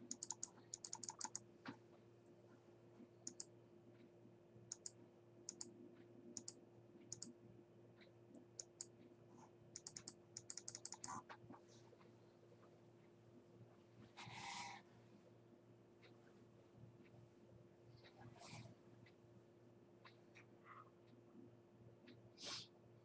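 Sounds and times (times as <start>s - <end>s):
keyboard keys tapping: 0.0s - 1.4s
faint steady hum: 0.0s - 23.0s.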